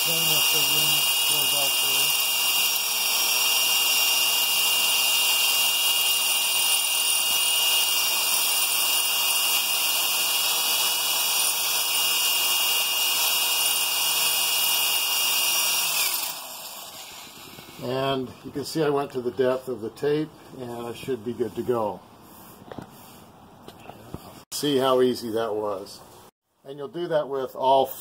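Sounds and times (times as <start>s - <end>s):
electric drill boring into brick: 0.0s - 17.8s.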